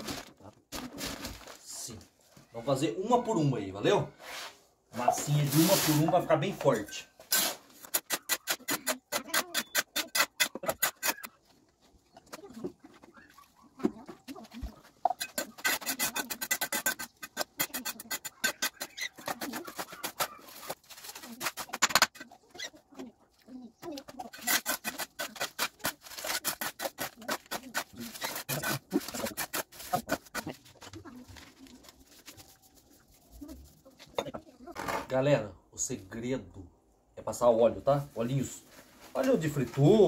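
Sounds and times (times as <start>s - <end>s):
trowel scraping cement on concrete: 4.2s - 11.4s, 14.3s - 22.8s, 24.0s - 34.3s.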